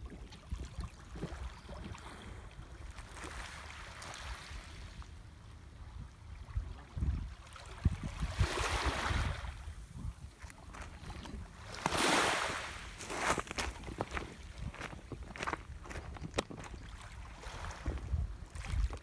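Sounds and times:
wind thumping on microphone: 0:06.6 - 0:12.3, 0:17.6 - 0:19.0
waves washing over pebbles: 0:11.5 - 0:13.6.

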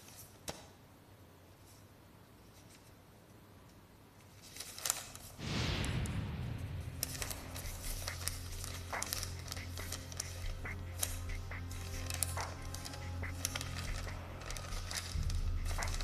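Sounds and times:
paper rustling: 0:04.2 - 0:05.4, 0:07.0 - 0:16.0
low background music drone: 0:05.4 - 0:16.0
swoosh: 0:05.4 - 0:16.0
envelope tearing: 0:07.0 - 0:16.0.

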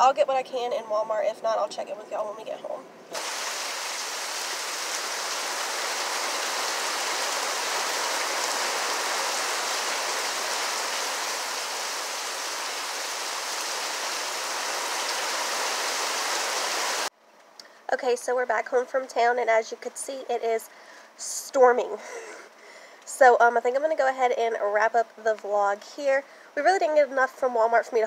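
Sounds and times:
heavy rain pouring: 0:03.1 - 0:17.1.

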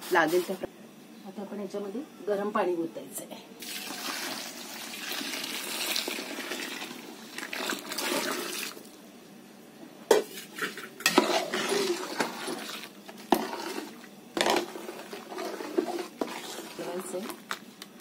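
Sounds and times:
water pouring into pot: 0:03.6 - 0:08.9.

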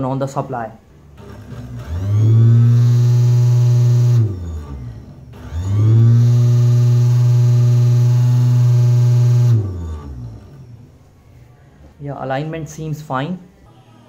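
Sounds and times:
electric motor whining: 0:01.2 - 0:10.9.

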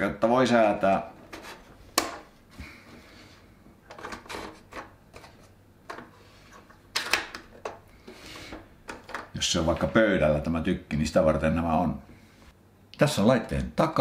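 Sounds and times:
plastic clicks and knocks: 0:08.9 - 0:09.3.

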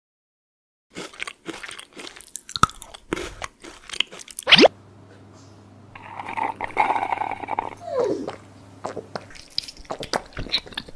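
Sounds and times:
slurping through a straw: 0:06.0 - 0:10.9
swallow: 0:06.0 - 0:10.9.

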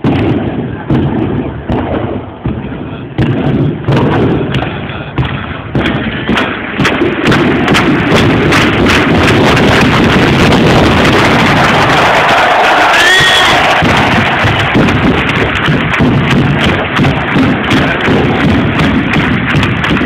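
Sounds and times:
loud stadium crowd noise: 0:00.0 - 0:20.0
pyrotechnic bangs and pops: 0:00.0 - 0:20.0.

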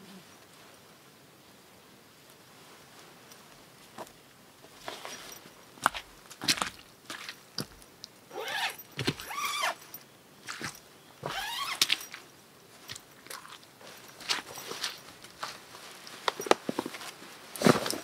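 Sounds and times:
footsteps on twigs: 0:03.9 - 0:18.0
nylon fabric rustling: 0:08.3 - 0:18.0.

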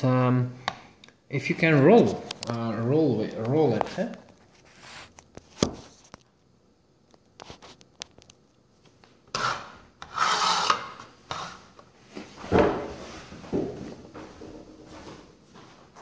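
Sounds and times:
base scraping on wooden tabletop: 0:09.3 - 0:11.7.

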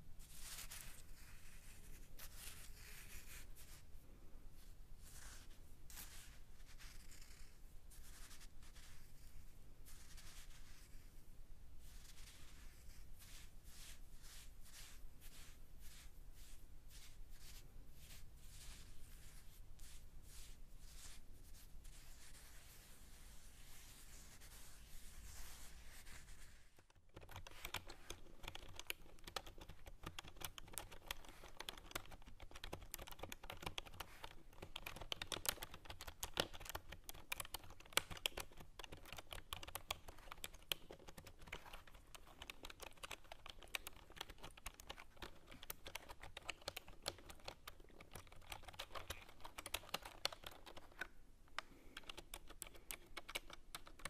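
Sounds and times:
computer keyboard typing clicks: 0:52.0 - 0:54.0.

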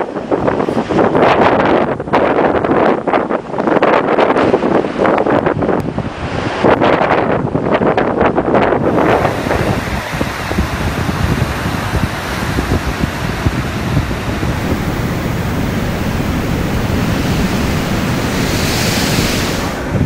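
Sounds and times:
storm wind and breaking seas: 0:00.0 - 0:20.0
wind buffeting microphone: 0:00.0 - 0:20.0.

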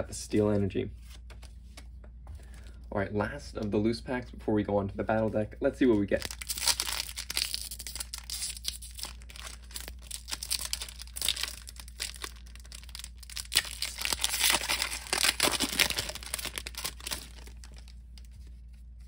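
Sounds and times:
foil wrapper crinkling and tearing: 0:06.1 - 0:18.4.

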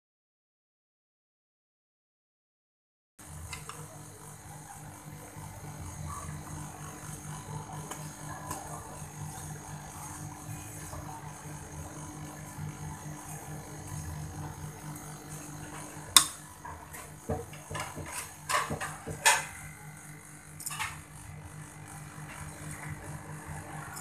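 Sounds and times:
steady low hum: 0:03.2 - 0:24.0
kitchen clicks and knocks: 0:17.3 - 0:19.6.

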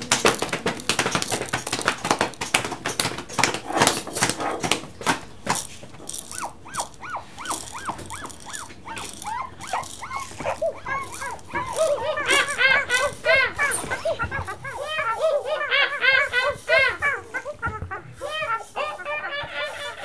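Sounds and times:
rapid irregular knocking: 0:00.0 - 0:20.0
animal yipping: 0:06.0 - 0:20.0.

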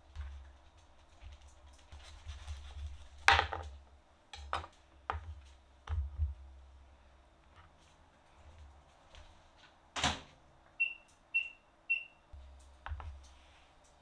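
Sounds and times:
low steady hum: 0:10.7 - 0:14.0.

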